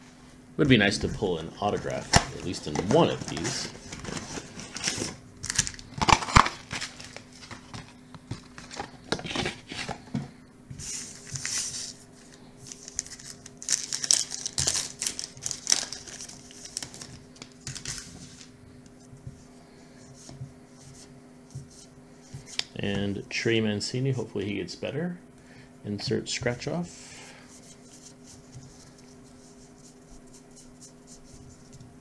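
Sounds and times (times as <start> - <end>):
card handling: 1.0 - 10.0, 10.9 - 18.5
wrapper crinkling and tearing: 1.9 - 7.8, 12.7 - 18.5.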